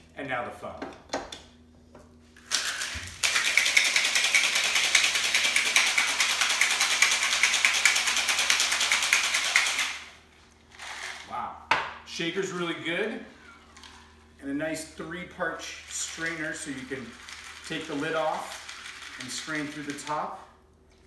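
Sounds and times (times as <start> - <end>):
cocktail shaker rattling with ice: 2.5 - 10.0, 15.9 - 20.2.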